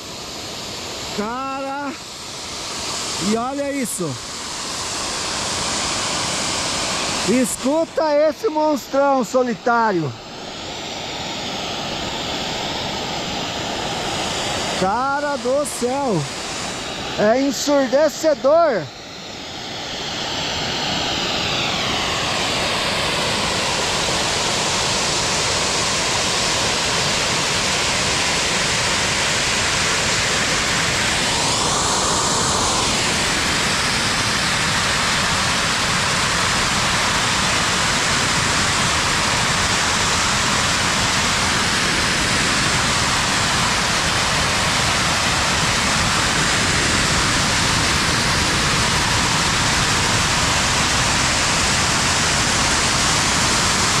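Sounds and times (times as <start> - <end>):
geyser steam hissing: 0.0 - 54.0.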